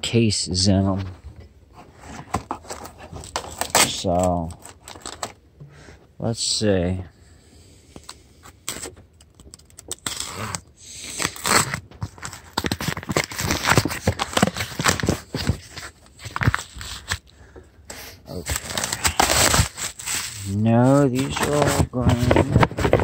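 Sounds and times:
cardboard boxes scraping and rustling: 18.3 - 23.0.

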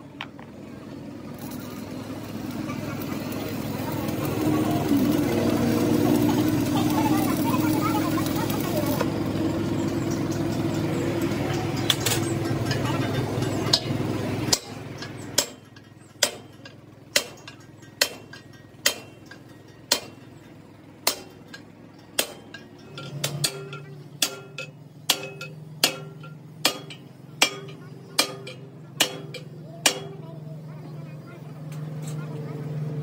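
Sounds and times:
steady machine hum: 0.0 - 33.0
stick welding crackle: 1.3 - 9.1
hammer striking metal: 9.6 - 30.4.

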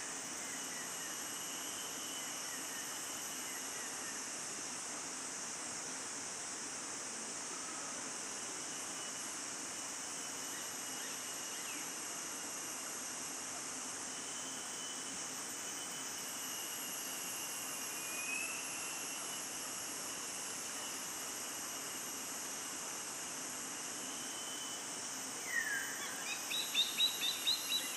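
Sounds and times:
forest insects droning: 0.0 - 27.9
high insect trills: 0.0 - 27.9.

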